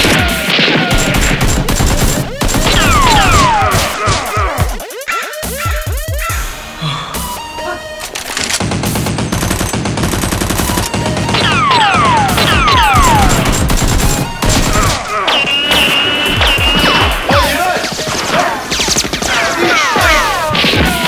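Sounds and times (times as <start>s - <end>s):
automatic gunfire: 0.0s - 3.9s, 8.4s - 15.0s
falling whistles: 15.2s - 18.2s.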